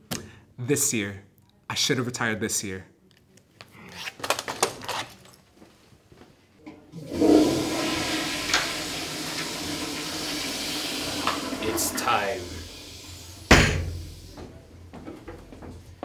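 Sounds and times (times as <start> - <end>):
toilet flushing: 6.8 - 14.5.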